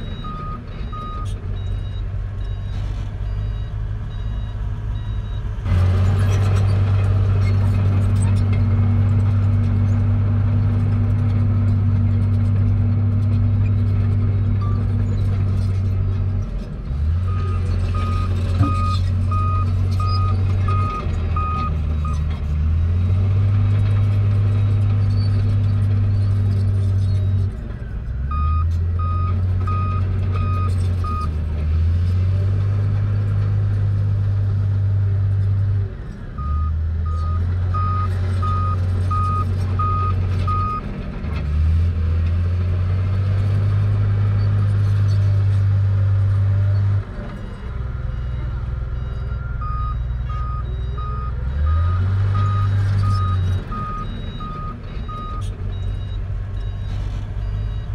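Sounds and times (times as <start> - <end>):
reversing alarm beeps: 0.0 - 5.4, 36.4 - 40.8, 48.1 - 57.9
bulldozer diesel engine droning: 0.0 - 57.9.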